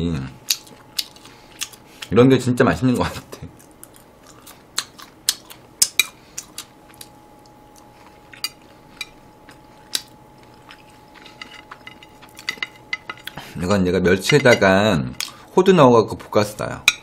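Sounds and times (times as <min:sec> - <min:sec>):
person chewing food: 0:00.4 - 0:02.1, 0:03.4 - 0:13.6.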